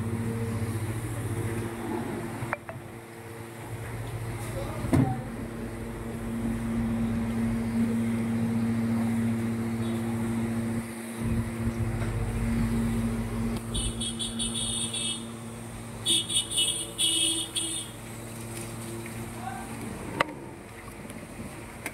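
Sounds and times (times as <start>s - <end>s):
low steady machine hum: 0.0s - 21.9s.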